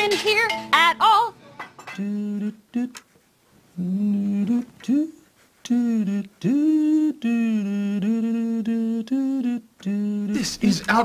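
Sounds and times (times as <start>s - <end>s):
person humming: 3.8s - 10.7s.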